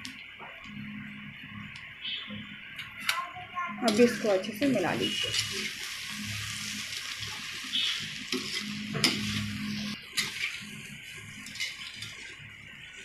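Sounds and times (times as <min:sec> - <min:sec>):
light sizzle: 0:00.0 - 0:13.0
spatula scraping metal pan: 0:05.0 - 0:05.9, 0:07.7 - 0:10.7, 0:11.4 - 0:12.3.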